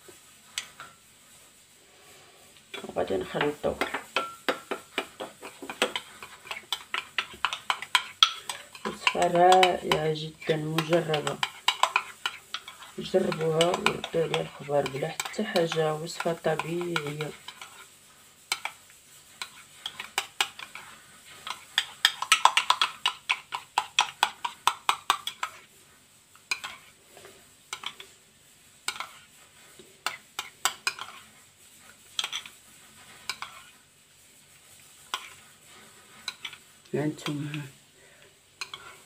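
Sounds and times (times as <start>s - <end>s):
metal spoon clinking in a bowl: 5.7s - 17.7s, 21.4s - 25.5s.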